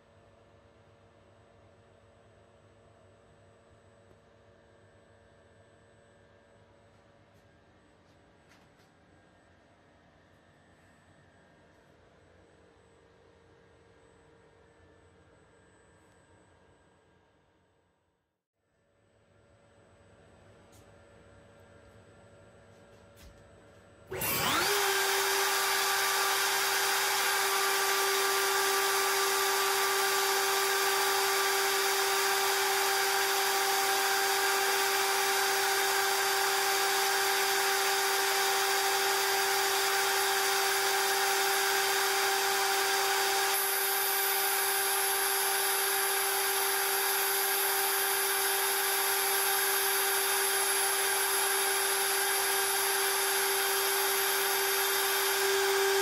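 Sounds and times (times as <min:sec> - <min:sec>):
drill cutting metal: 0:24.1 - 0:56.0
lathe spindle whining: 0:24.1 - 0:56.0.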